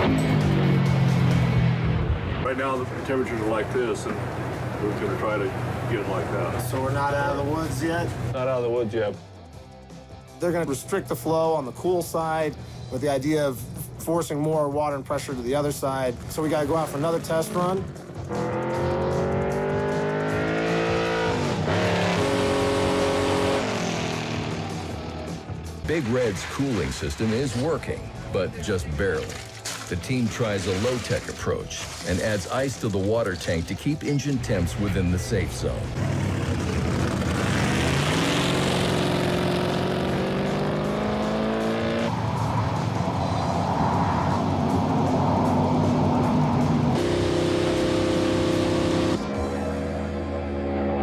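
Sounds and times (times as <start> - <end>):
race car engine accelerating: 16.9 - 25.5, 35.8 - 51.0.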